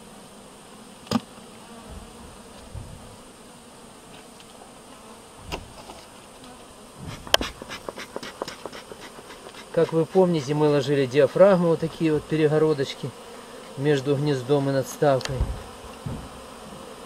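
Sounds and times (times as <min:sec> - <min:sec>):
honeybees buzzing: 0:00.0 - 0:17.0
wooden hive knocking: 0:07.0 - 0:10.8, 0:13.6 - 0:16.9.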